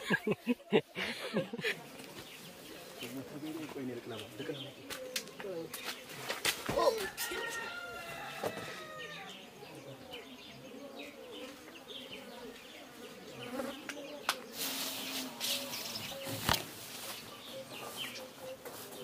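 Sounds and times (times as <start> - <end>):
flying insect buzzing: 12.3 - 16.6.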